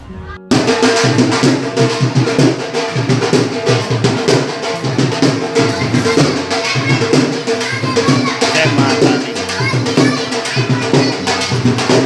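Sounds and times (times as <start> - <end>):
fast drum beat music: 0.4 - 12.0.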